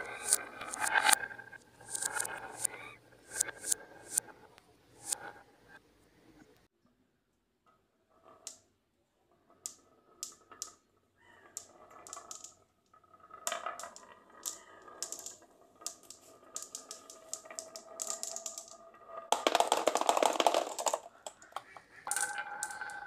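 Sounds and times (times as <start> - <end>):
marbles clicking together: 0.0 - 4.2, 11.5 - 12.6, 13.4 - 23.0
faint ringing of rolling marbles: 0.0 - 4.4, 8.1 - 23.0.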